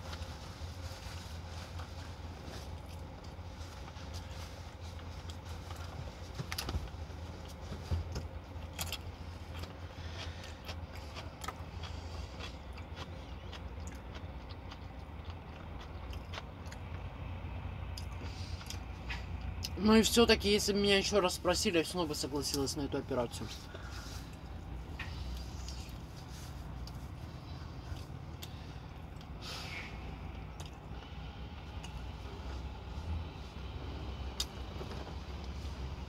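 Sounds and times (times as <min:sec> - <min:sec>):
steady low hum: 0:00.0 - 0:36.0
chewing crispy fried chicken: 0:01.4 - 0:19.8, 0:23.6 - 0:33.8.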